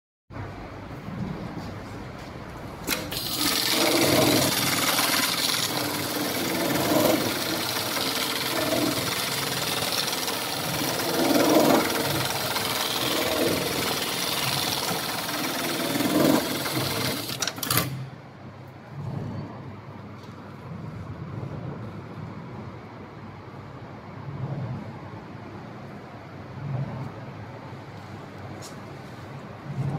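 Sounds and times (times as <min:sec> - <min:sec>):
sewing machine stitching: 0:02.9 - 0:18.1.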